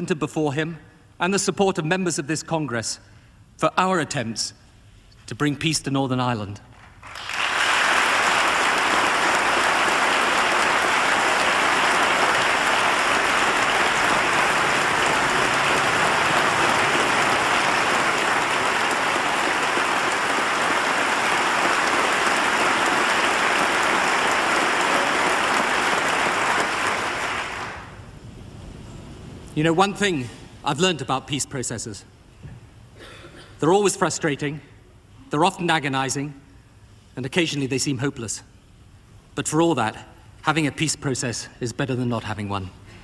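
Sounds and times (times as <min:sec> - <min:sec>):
crowd applauding: 0:06.8 - 0:28.0.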